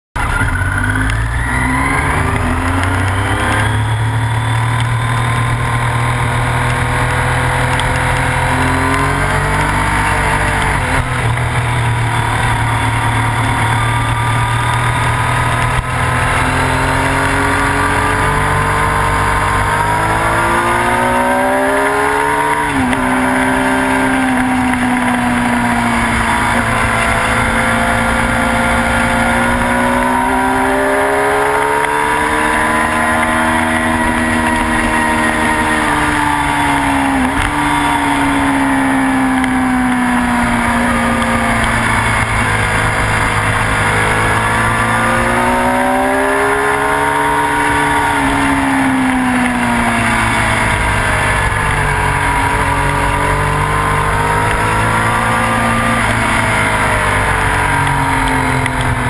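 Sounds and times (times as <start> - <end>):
motorcycle engine at speed: 0.2 - 59.0.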